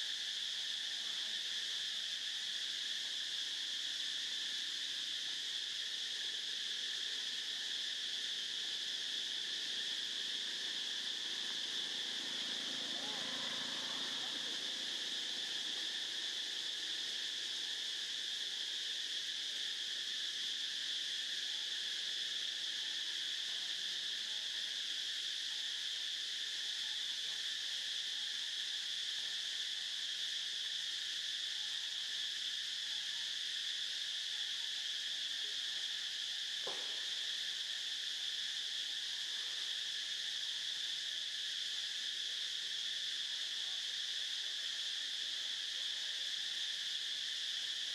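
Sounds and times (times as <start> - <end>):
insects chorus drone: 0.0 - 47.9
faint tap: 36.6 - 36.9.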